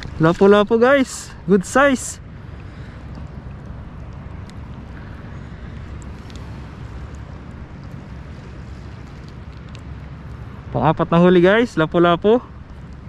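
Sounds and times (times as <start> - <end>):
wind rumbling on microphone: 0.0 - 13.0
faint clicks: 2.5 - 10.5.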